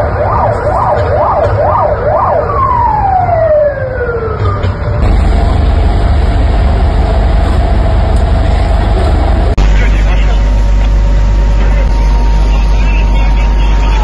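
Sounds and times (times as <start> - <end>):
siren wailing: 0.0 - 14.0
vehicle engine rumble: 0.0 - 14.0
steady hum: 4.9 - 14.0.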